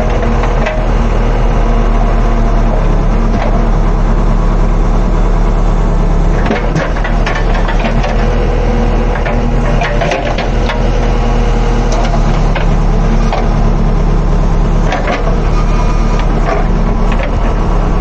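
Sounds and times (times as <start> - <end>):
diesel engine running: 0.0 - 18.0
sharp clicks and knocks: 6.4 - 8.3, 9.1 - 10.9, 11.9 - 13.6, 14.9 - 15.4, 16.1 - 17.5.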